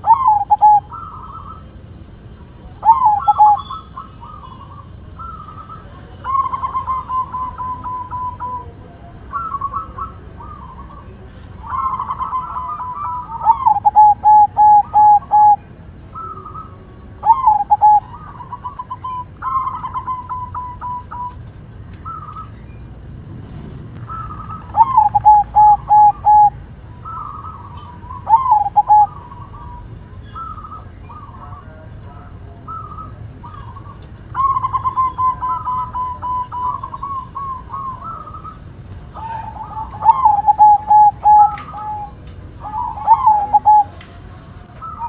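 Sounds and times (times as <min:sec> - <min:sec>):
dove cooing: 0:00.0 - 0:45.0.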